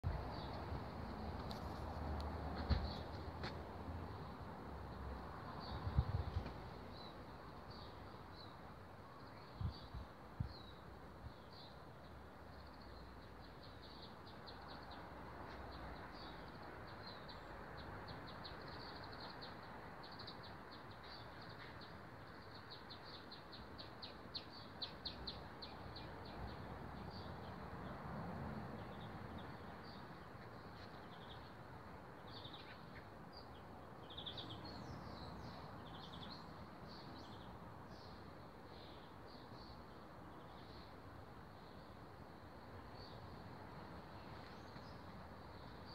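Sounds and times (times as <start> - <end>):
faint birds chirping: 28.7 - 45.9.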